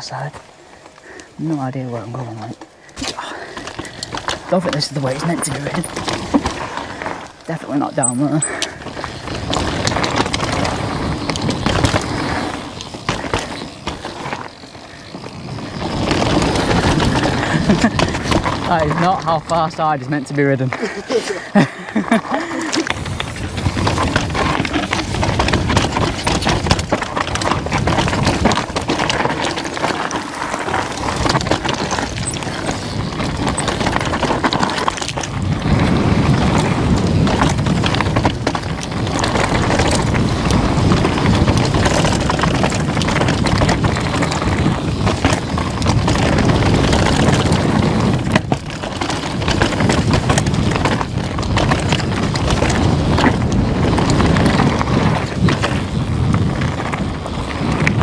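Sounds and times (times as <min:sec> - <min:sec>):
bike knocking and rattling: 0:00.0 - 0:58.0
tyres crunching over ground: 0:00.0 - 0:58.0
wind on microphone: 0:22.1 - 0:29.8, 0:30.7 - 0:58.0.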